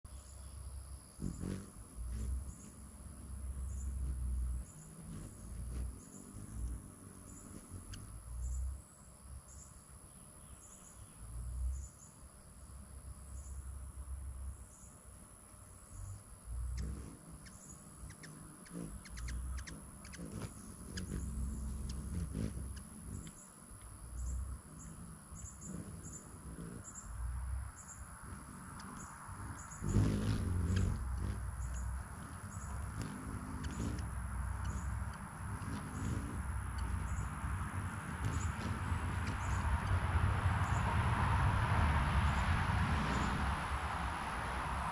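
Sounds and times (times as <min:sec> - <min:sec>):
hummingbird high chips: 0:16.7 - 0:27.2, 0:28.0 - 0:40.0
low rushing sounds: 0:36.4 - 0:44.9.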